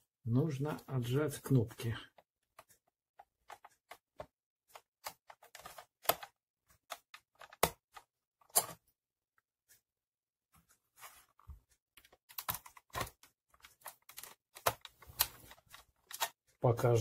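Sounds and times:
plastic clicks and taps: 0:02.1 - 0:08.8, 0:11.4 - 0:16.4.

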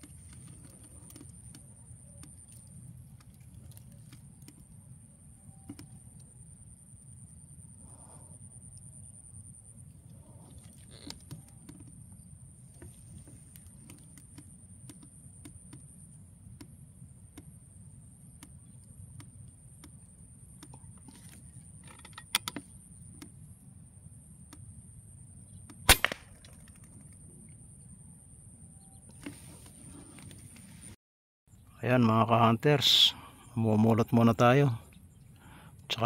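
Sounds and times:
air rifle shot crack: 0:25.9 - 0:26.6.

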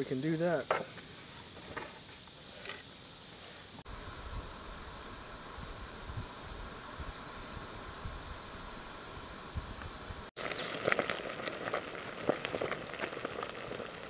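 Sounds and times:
high insect drone: 0:00.0 - 0:14.0
camp stove burner roaring: 0:03.8 - 0:14.0.

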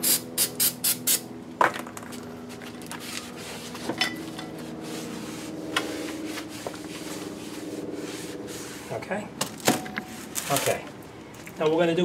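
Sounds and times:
cloth rag wiping metal: 0:04.8 - 0:09.0.

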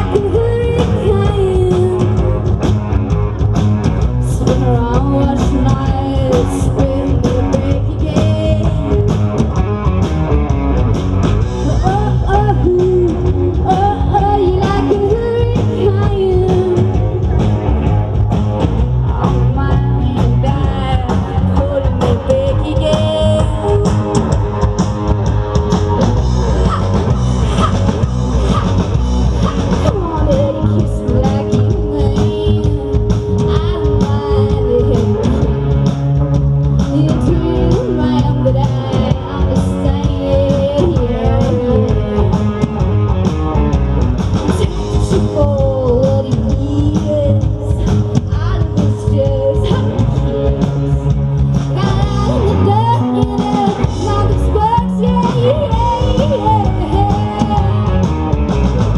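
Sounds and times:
woman singing: 0:00.0 - 0:02.4, 0:04.2 - 0:09.3, 0:11.6 - 0:17.4, 0:19.0 - 0:24.4, 0:29.8 - 0:35.7, 0:36.8 - 0:42.6, 0:44.4 - 0:58.1
bass guitar: 0:00.0 - 0:58.9
drum kit: 0:00.0 - 0:58.9
electric guitar: 0:00.0 - 0:58.9.

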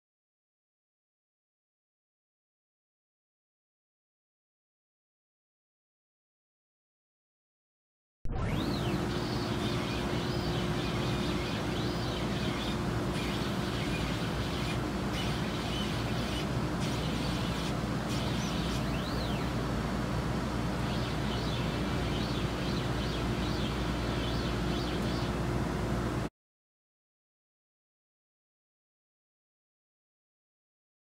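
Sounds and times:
motors whining up and down: 0:08.3 - 0:19.6
laser cutter hum and air rush: 0:08.3 - 0:26.3.

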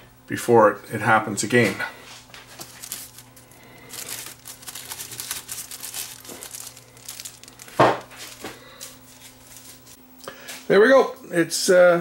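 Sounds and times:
low electrical hum: 0:00.0 - 0:12.0
crinkly rustling handling noise: 0:01.5 - 0:10.0.

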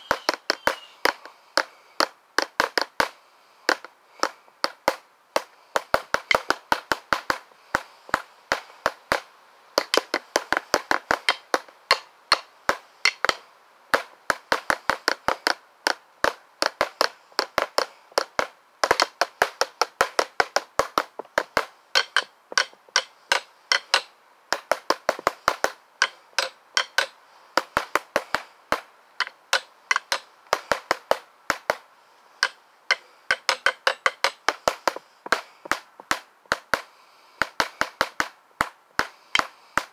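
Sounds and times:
drumsticks clicking on hard surface: 0:09.8 - 0:13.4, 0:22.0 - 0:27.2, 0:29.2 - 0:31.7, 0:32.4 - 0:36.6.

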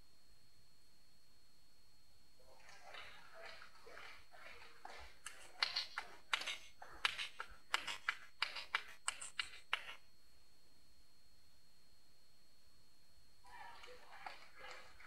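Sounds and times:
table tennis ball clicking: 0:05.3 - 0:10.0.

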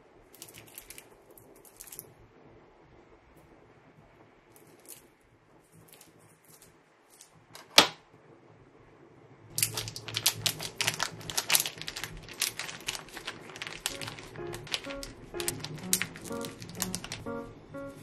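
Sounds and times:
plastic packet crinkling: 0:00.4 - 0:02.0, 0:09.5 - 0:17.4.

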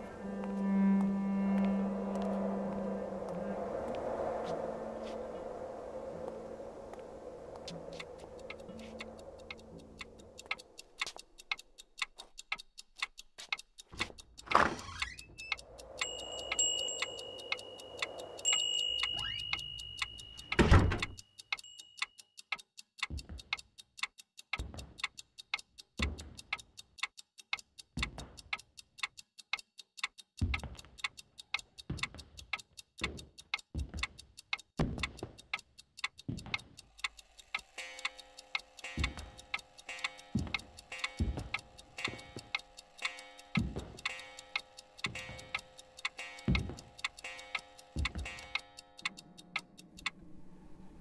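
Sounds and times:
low held tones: 0:00.0 - 0:11.5, 0:15.3 - 0:20.6
clock ticking: 0:00.0 - 0:50.3
high steady ringing tone: 0:15.4 - 0:20.7.

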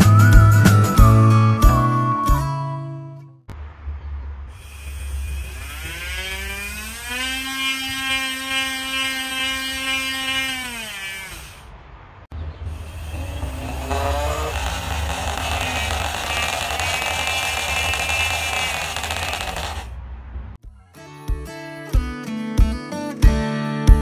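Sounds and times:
drill buzzing against picture frame: 0:04.6 - 0:11.6, 0:13.0 - 0:19.8
nail drill motor whine: 0:04.6 - 0:11.6, 0:12.9 - 0:19.9.

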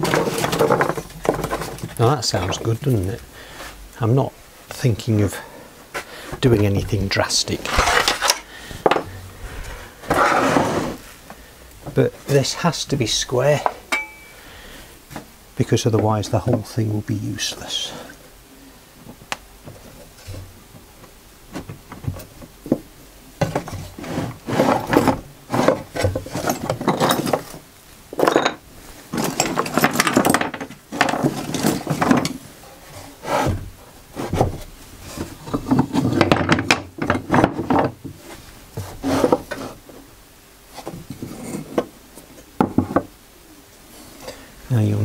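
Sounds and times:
wood scraping on wood: 0:00.0 - 0:03.8, 0:05.9 - 0:12.6, 0:21.5 - 0:27.6, 0:29.0 - 0:40.1, 0:40.7 - 0:43.1.

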